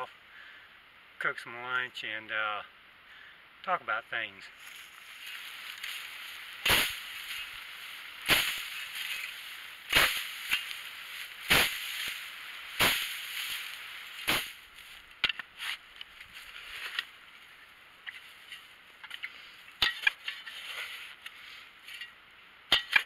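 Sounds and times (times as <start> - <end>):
grass rustling: 3.7 - 23.0
digging tool striking dirt: 5.7 - 16.2, 19.0 - 21.3, 22.0 - 23.0.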